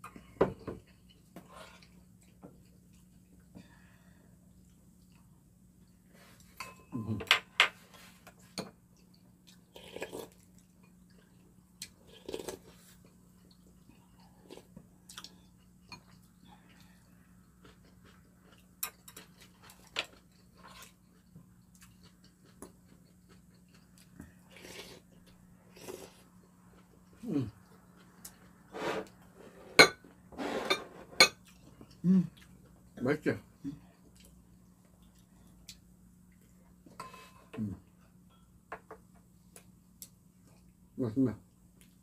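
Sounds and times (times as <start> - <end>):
chewing: 8.3 - 28.7, 33.8 - 37.0.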